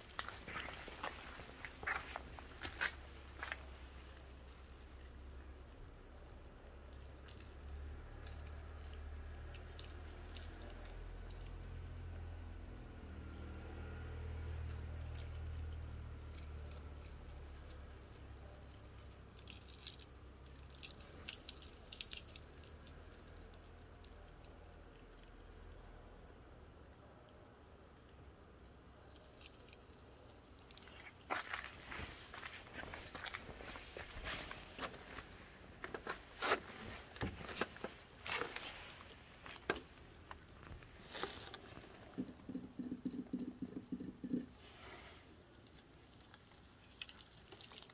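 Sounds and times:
low steady rumble: 0.0s - 47.0s
dry leaves crackling: 46.1s - 47.9s.

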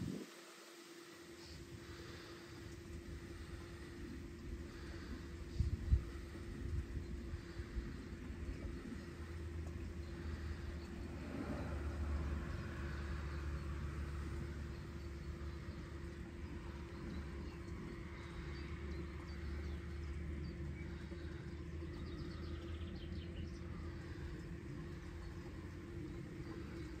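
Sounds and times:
low hum: 0.0s - 27.0s
droning tone: 1.1s - 27.0s.

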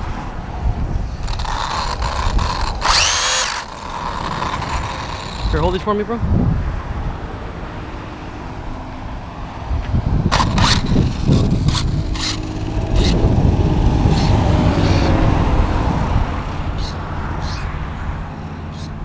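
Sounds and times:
electric motor whine: 1.2s - 5.9s, 10.3s - 15.2s.

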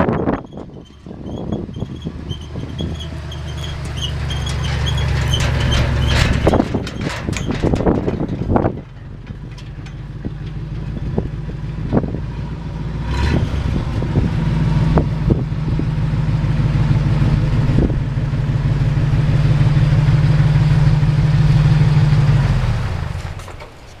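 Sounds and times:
truck engine idling: 0.0s - 24.0s
sharp clicks and knocks: 2.8s - 12.0s.

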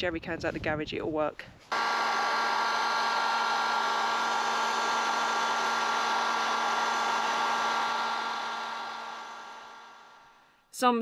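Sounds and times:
hot-air blower whining: 1.7s - 10.4s.

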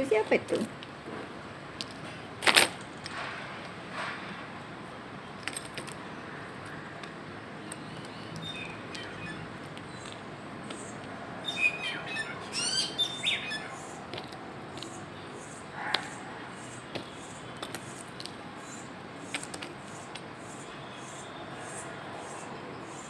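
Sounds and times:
bird chirping: 7.6s - 14.1s.

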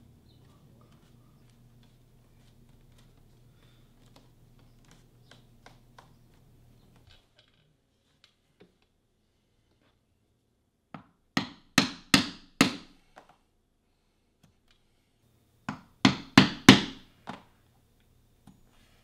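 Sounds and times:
mallet striking chisel through leather: 11.0s - 13.0s, 15.7s - 17.0s.

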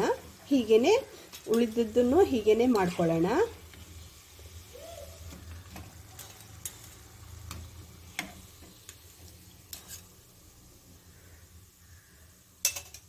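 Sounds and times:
oil sizzling: 0.0s - 13.0s
steel spoon clinking: 6.1s - 7.1s, 12.6s - 13.0s.

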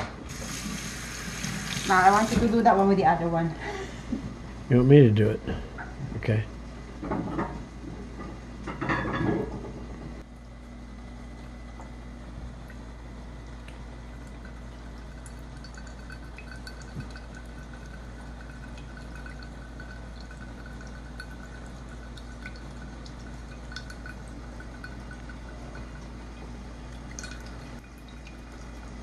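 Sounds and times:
low background hum: 0.0s - 29.0s
water trickling into a ceramic bowl: 12.6s - 29.0s.

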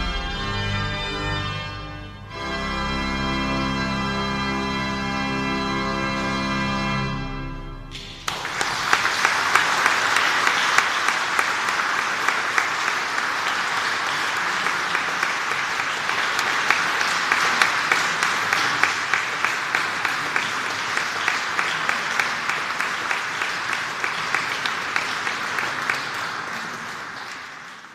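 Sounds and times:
audience applauding: 7.9s - 27.9s.

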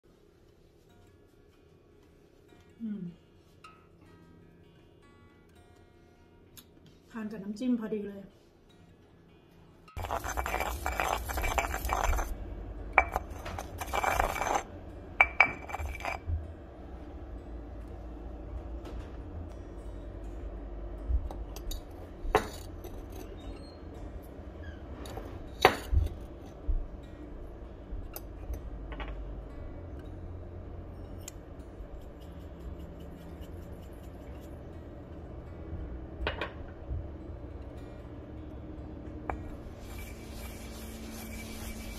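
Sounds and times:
pestle grinding in stone mortar: 10.0s - 12.4s, 13.0s - 16.3s, 39.4s - 41.9s
low hum: 10.0s - 41.9s
shaker ticking: 31.8s - 34.6s, 39.7s - 41.9s.

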